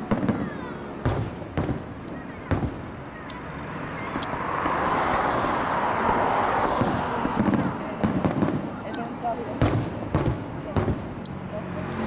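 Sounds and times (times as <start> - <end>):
firework bang: 0.0 - 3.0, 4.1 - 8.9, 9.5 - 11.2
firework rushing noise: 0.0 - 12.0.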